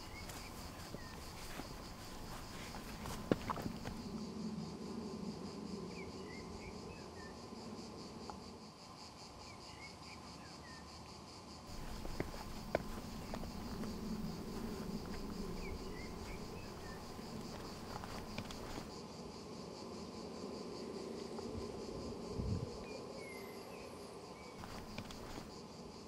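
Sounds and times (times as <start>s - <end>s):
crickets chirping: 0.0s - 26.0s
light clicks: 24.6s - 25.5s.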